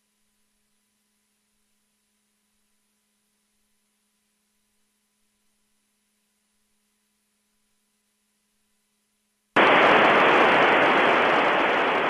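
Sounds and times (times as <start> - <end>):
faint steady hum: 0.0 - 12.0
radio static hiss: 9.6 - 12.0.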